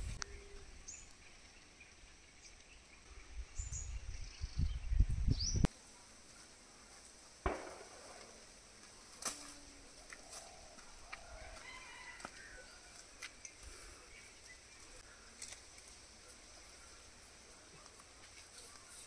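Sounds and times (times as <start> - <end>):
insect hum: 0.0 - 19.0
sharp thump: 7.5 - 8.2.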